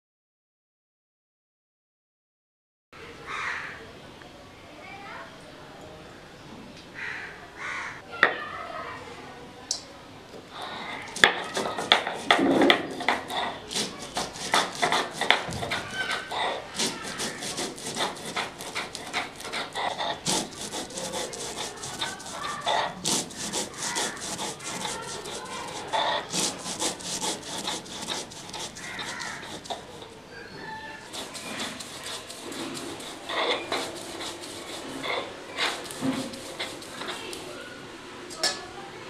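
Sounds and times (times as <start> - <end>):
roller grinding rice on stone slab: 10.9 - 38.4.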